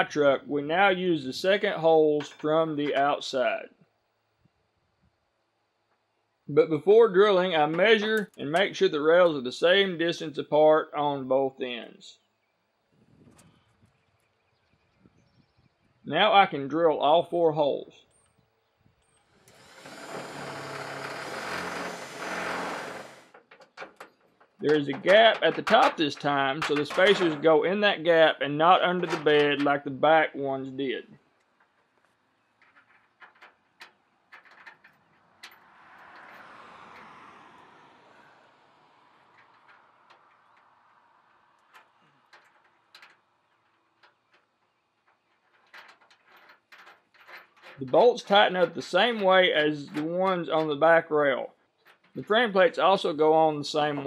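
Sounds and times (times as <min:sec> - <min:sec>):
electric drill boring metal: 0:19.4 - 0:23.4.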